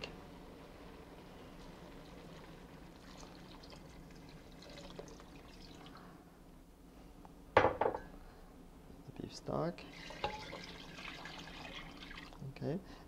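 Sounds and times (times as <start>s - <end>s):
water trickling into pot: 1.5s - 6.1s, 9.9s - 12.4s.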